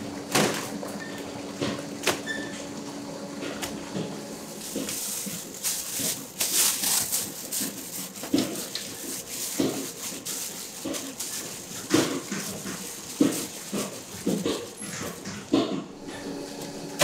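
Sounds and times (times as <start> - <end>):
dough squelching: 3.3 - 16.8
plastic bag rustling: 4.3 - 17.0.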